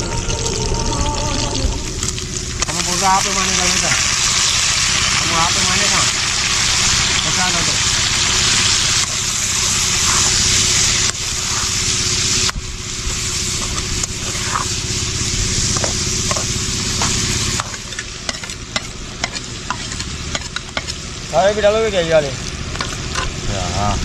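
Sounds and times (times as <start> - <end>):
food sizzling in a pan: 0.0 - 23.4
metal spatula scraping a pan: 8.7 - 12.1, 13.3 - 14.8, 15.7 - 21.0.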